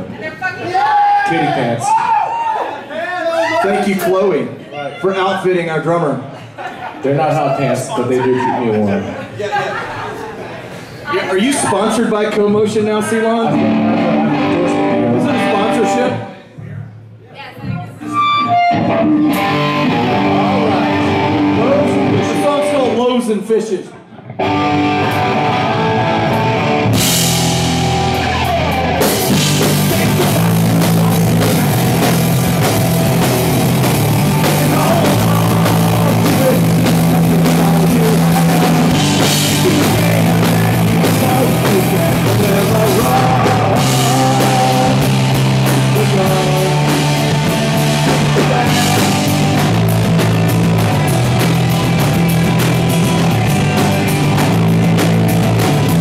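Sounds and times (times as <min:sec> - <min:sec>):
punk rock band playing: 0:12.6 - 0:16.2, 0:17.7 - 0:23.2, 0:24.3 - 0:56.0
man singing into microphone: 0:34.3 - 0:49.4.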